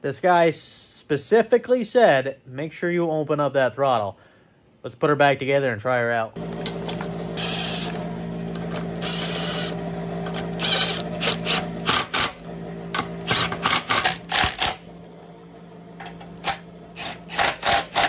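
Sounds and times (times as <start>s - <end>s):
impact driver whirring: 6.4s - 15.0s, 16.3s - 18.0s
impact driver rattling clicks: 10.2s - 12.4s, 13.0s - 14.8s, 16.4s - 18.0s.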